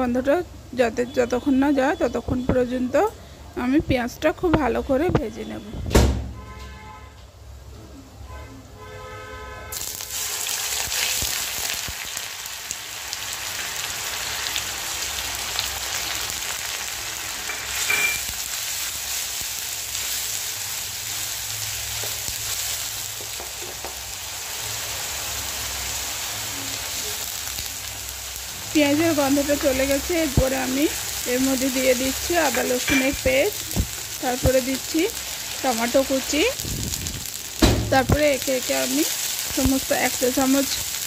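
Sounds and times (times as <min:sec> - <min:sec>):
onion paste sizzling in oil: 0:09.7 - 0:41.0.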